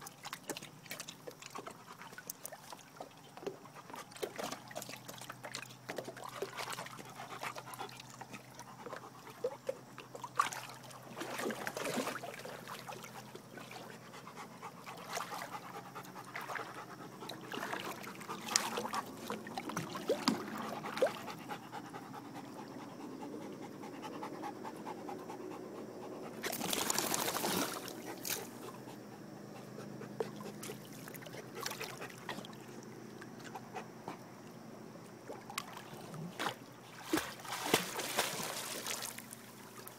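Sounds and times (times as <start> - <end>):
water lapping and trickling: 0.0 - 39.9
dog panting: 13.1 - 19.2, 20.5 - 26.4, 28.0 - 32.4.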